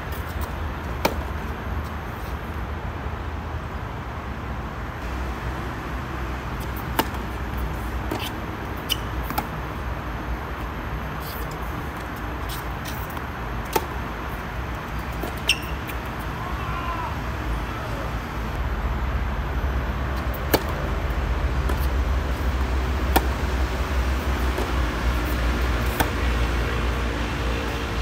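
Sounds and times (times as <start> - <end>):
racket striking tennis ball: 6.6 - 9.6, 11.2 - 14.1, 14.8 - 16.4, 20.5 - 20.8, 21.6 - 27.3
low background rumble: 13.2 - 28.0.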